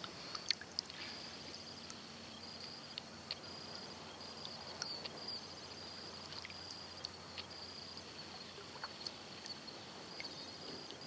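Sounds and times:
faint sharp ticks: 0.0s - 3.5s, 4.4s - 5.3s, 5.9s - 7.6s
insects trilling: 0.0s - 11.0s.

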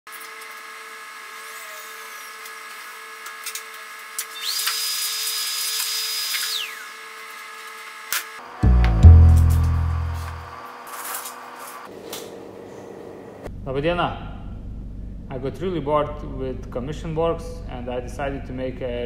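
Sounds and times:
power tool motor whine: 0.1s - 8.5s
workshop hum: 0.1s - 13.7s
loud deep boom: 8.6s - 10.5s.

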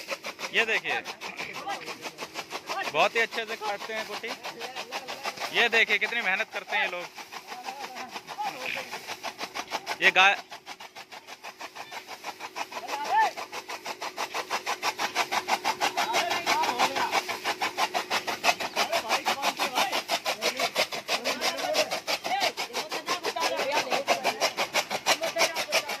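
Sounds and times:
chaff cutter blades slicing stalks: 0.0s - 26.0s.

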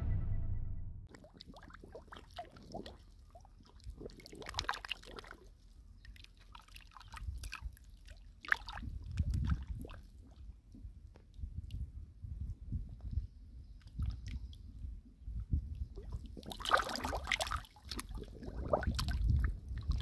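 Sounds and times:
fish splashing in water: 16.5s - 19.0s.

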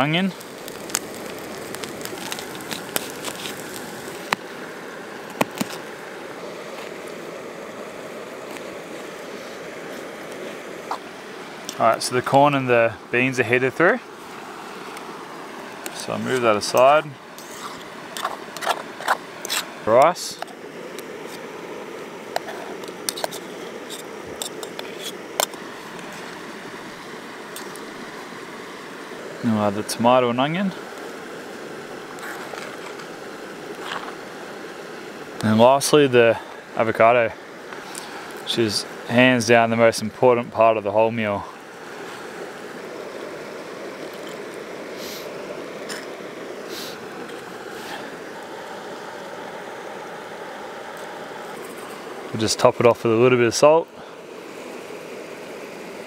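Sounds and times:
gas stove hissing: 0.0s - 13.1s, 14.1s - 36.8s, 41.6s - 56.0s
wrap crinkling: 0.3s - 4.4s.

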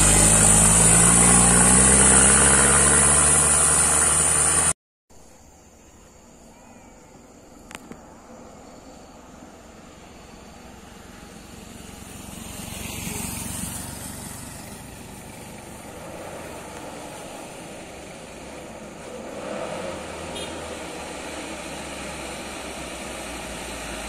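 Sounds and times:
motorcycle passing: 0.0s - 4.8s, 9.8s - 24.0s
truck diesel engine climbing: 0.0s - 4.8s, 9.6s - 24.0s.

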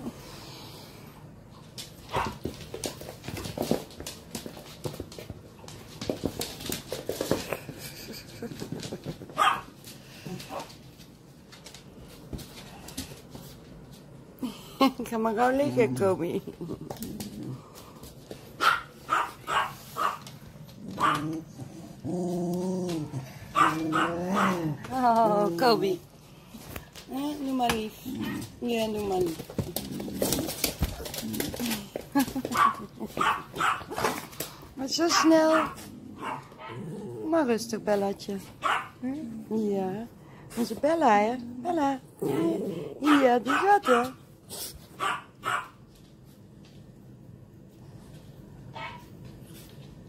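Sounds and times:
dog claws clicking on floor: 1.6s - 14.1s, 26.5s - 36.0s
dogs yapping: 18.6s - 20.2s, 20.9s - 21.5s, 23.5s - 24.6s, 32.5s - 34.3s, 45.0s - 45.8s
dog growling: 20.7s - 24.9s, 27.9s - 28.7s, 29.5s - 32.0s, 35.5s - 37.7s, 42.0s - 43.3s
dog vocal sounds: 20.8s - 24.9s.

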